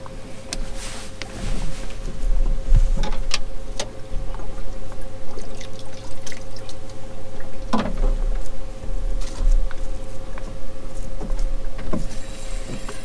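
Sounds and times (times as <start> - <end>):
steady hum: 0.0 - 13.0
water trickling and splashing: 4.0 - 13.0.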